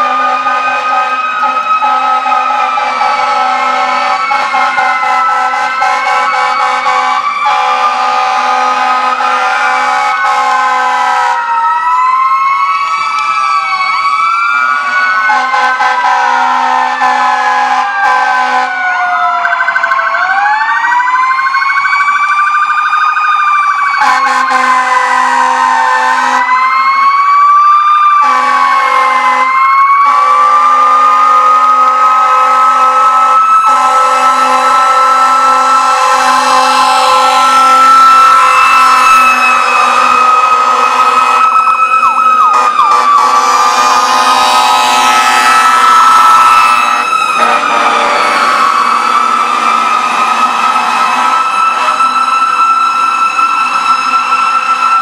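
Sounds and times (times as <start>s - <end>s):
steady horn tone: 0.0s - 11.4s, 14.8s - 18.8s, 24.0s - 26.5s, 28.2s - 38.1s, 38.9s - 41.6s, 42.4s - 49.4s, 50.1s - 52.1s
fire truck sirens wailing: 0.0s - 55.0s.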